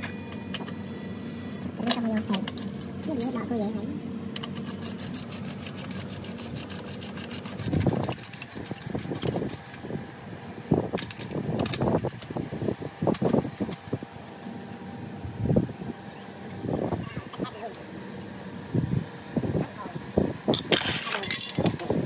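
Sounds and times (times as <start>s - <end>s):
tools clinking on metal: 20.6s - 21.9s.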